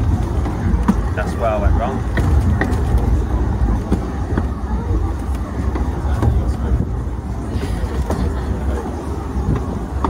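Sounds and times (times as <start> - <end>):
train rumbling along track: 0.0 - 10.0
clicks and knocks of running gear: 2.1 - 3.2.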